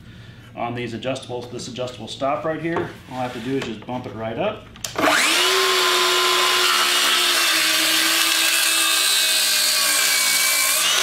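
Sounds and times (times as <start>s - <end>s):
circular saw cutting wood: 5.0s - 11.0s.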